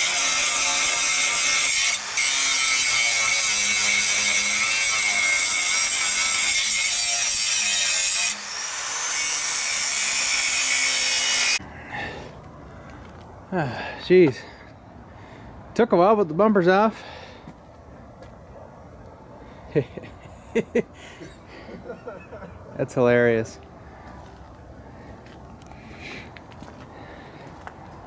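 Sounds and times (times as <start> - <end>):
angle grinder cutting steel: 0.0 - 11.6.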